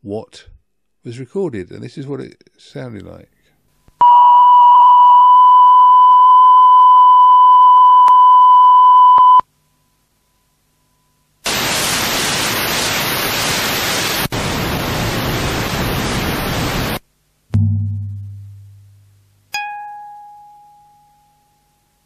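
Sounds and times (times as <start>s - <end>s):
hiss of test noise: 11.4s - 17.0s
steady test tone: 17.5s - 19.4s.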